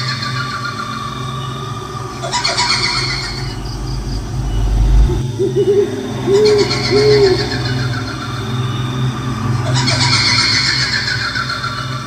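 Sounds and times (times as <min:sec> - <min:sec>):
low drone: 0:00.0 - 0:12.0
deep rumble: 0:01.5 - 0:08.2
owl hooting: 0:02.1 - 0:08.9.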